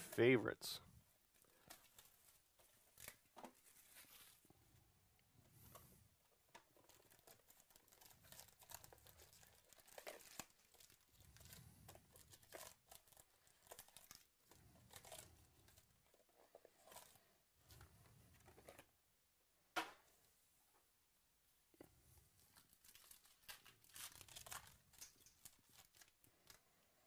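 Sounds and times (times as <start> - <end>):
cardboard and foil crinkling: 1.3 - 4.4, 6.6 - 18.9, 22.4 - 26.6.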